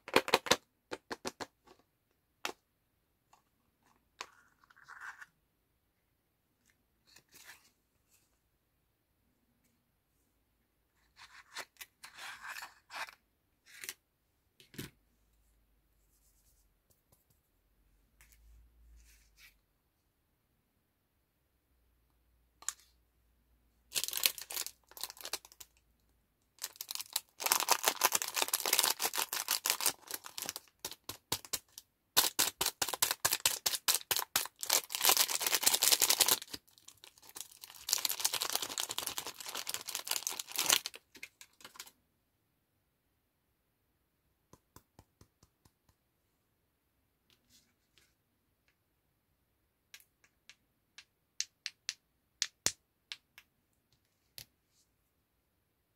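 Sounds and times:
plastic wrapper crinkling: 23.9s - 25.7s, 26.6s - 41.9s.

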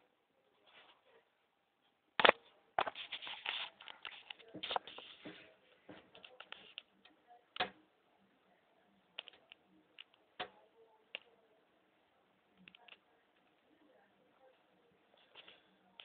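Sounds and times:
faint irregular clicks and taps: 2.2s - 7.9s, 9.1s - 11.4s, 12.5s - 13.7s.

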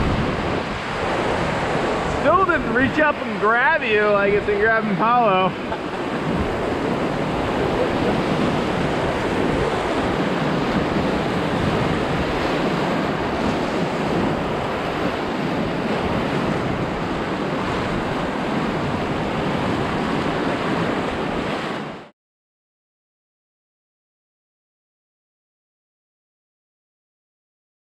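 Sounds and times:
whitewater rushing: 0.0s - 21.7s
wind buffeting microphone: 0.0s - 22.1s.

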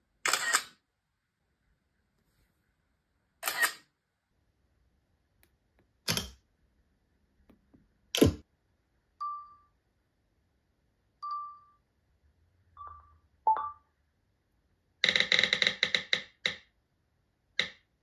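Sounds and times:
camera shutter clicks: 0.3s - 0.7s, 3.4s - 3.8s
phone video recording beeps: 9.2s - 9.8s, 11.2s - 11.9s, 12.7s - 14.0s.

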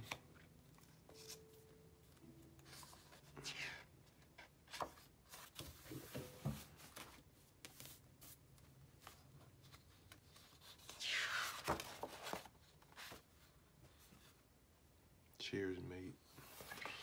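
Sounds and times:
paper pages rustling: 0.0s - 1.6s, 4.4s - 8.4s, 9.0s - 13.5s.

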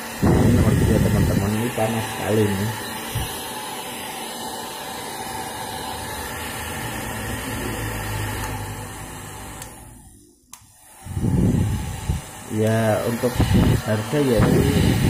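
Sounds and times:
hair dryer running: 0.0s - 15.0s
loud low rumble: 0.2s - 1.2s.

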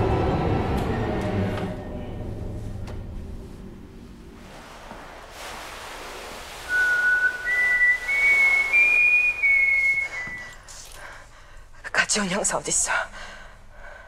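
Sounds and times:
person whistling a slow tune: 6.7s - 10.6s.

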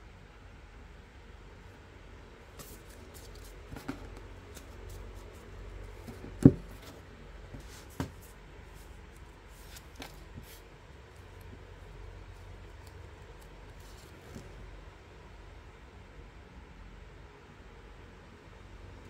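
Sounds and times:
card stack knocking on table: 6.1s - 6.7s
playing cards clicking and sliding: 9.6s - 10.7s.

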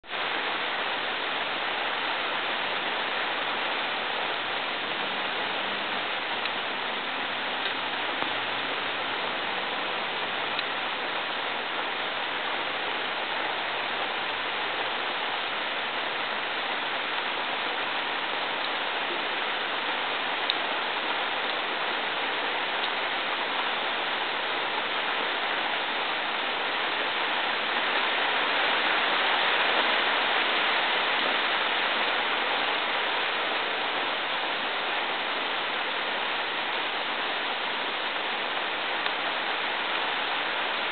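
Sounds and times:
rain hissing: 0.0s - 40.9s
faint ticks: 10.5s - 10.7s.

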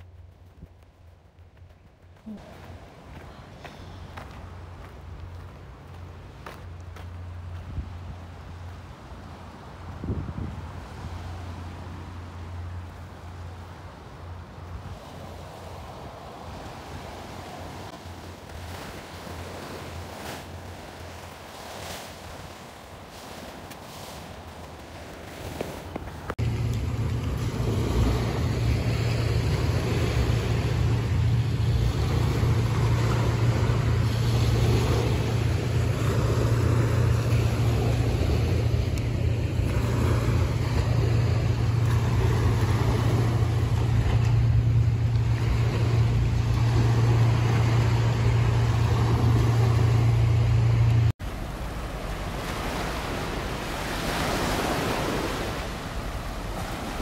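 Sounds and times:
small waves washing onto beach: 1.6s - 57.0s
loud low rumble with hiss: 26.4s - 53.9s.

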